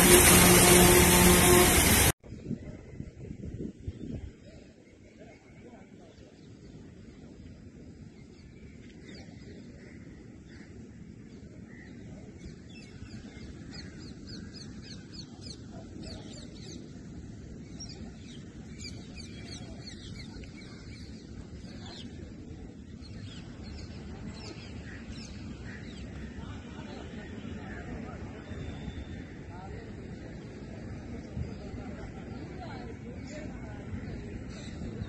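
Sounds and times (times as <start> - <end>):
low outdoor rumble: 0.0 - 2.7.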